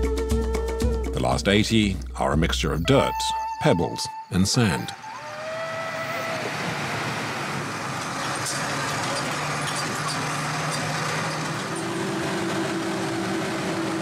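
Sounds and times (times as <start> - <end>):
bus engine and road noise: 4.3 - 14.0.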